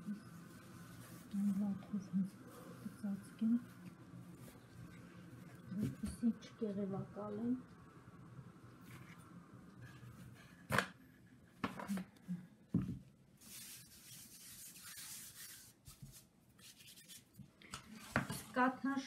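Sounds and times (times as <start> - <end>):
towel rustling and rubbing: 0.0 - 6.0, 13.4 - 18.1.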